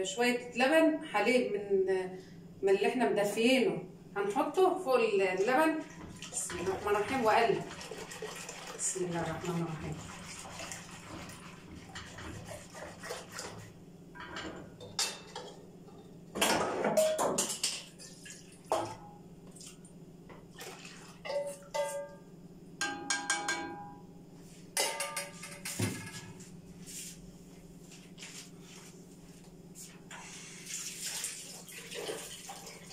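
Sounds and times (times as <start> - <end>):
steady low hum: 0.0 - 8.0, 17.1 - 30.7
metal cup clinking on plastic bowl: 22.8 - 23.9.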